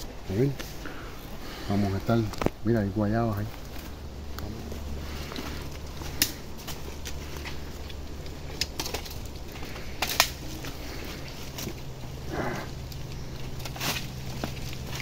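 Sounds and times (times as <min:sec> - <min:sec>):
dry leaves crackling and rustling: 0:00.0 - 0:15.0
low steady hum: 0:00.0 - 0:15.0
twigs snapping: 0:02.2 - 0:02.7, 0:05.1 - 0:15.0.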